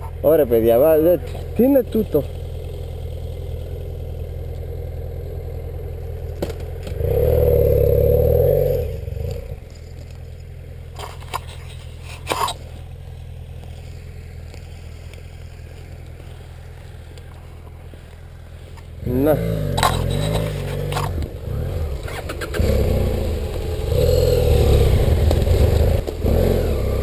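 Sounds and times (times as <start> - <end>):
motorcycle engine idling: 0.0 - 27.0
knocks and scrapes: 9.3 - 12.9, 19.6 - 21.4.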